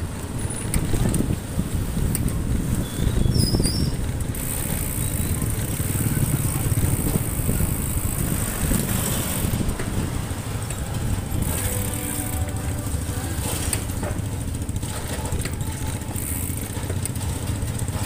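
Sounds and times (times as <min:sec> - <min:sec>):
wind buffeting microphone: 0:00.0 - 0:12.7
motorcycle engine and road rumble: 0:00.0 - 0:18.0.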